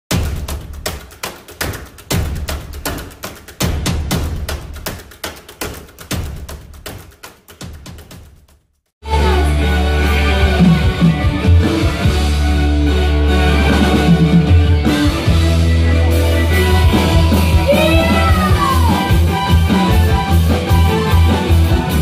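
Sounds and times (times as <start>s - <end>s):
person singing: 9.0s - 11.7s, 16.2s - 19.4s
live band music through pa: 9.0s - 22.0s.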